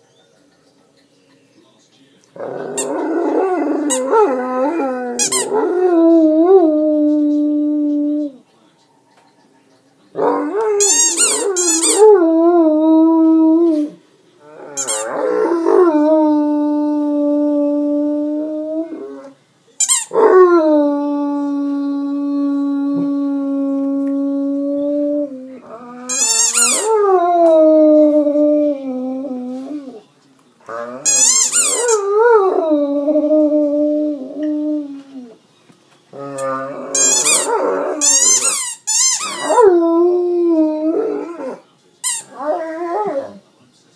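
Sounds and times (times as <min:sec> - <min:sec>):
dog howling: 0:02.4 - 0:08.4, 0:10.2 - 0:19.4, 0:20.1 - 0:30.0, 0:30.7 - 0:35.4, 0:36.1 - 0:38.5, 0:39.2 - 0:41.6, 0:42.3 - 0:43.4
squeaky dog toy: 0:05.2 - 0:05.5, 0:10.8 - 0:12.0, 0:14.8 - 0:15.1, 0:19.8 - 0:20.2, 0:26.1 - 0:26.9, 0:31.0 - 0:32.0, 0:36.4 - 0:39.6, 0:42.0 - 0:42.4.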